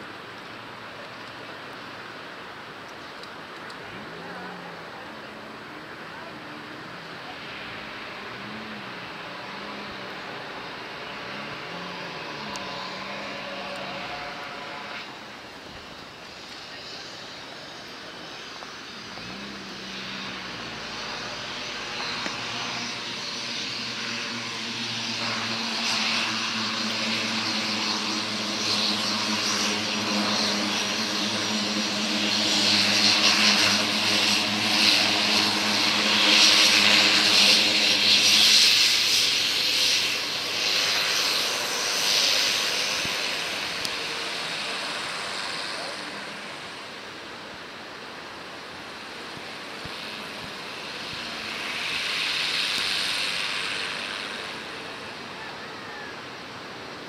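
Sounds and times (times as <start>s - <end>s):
propeller plane taxiing: 0.0s - 57.0s.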